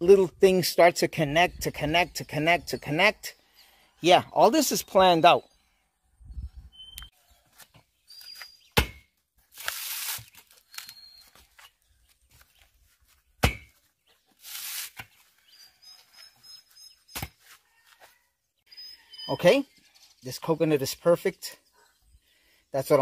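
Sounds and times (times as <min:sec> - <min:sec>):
faint bird chirps: 0:01.5 - 0:08.8, 0:10.6 - 0:12.6, 0:15.2 - 0:20.6.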